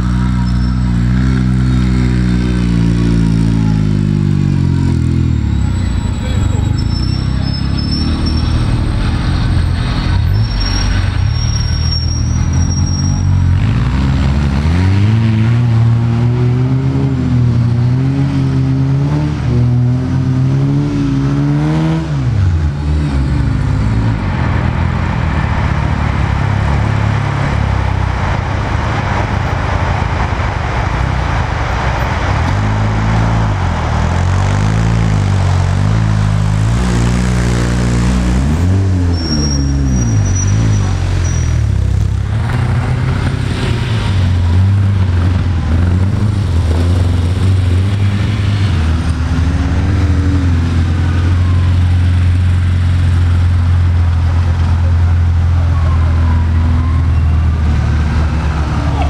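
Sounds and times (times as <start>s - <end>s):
car engine revving: 0.0s - 59.0s
steady rushing noise: 24.2s - 35.4s.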